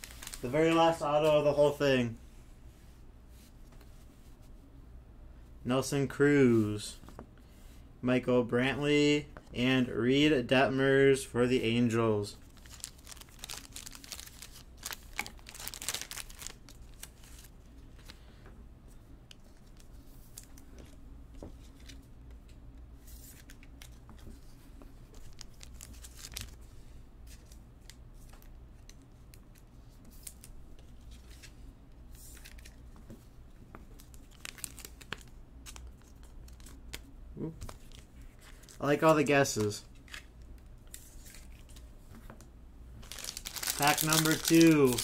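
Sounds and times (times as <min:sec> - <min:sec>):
foil wrappers crinkling: 0:00.0 - 0:01.0, 0:12.4 - 0:17.5, 0:34.0 - 0:36.8, 0:43.0 - 0:45.0
steady low hum: 0:00.0 - 0:45.0.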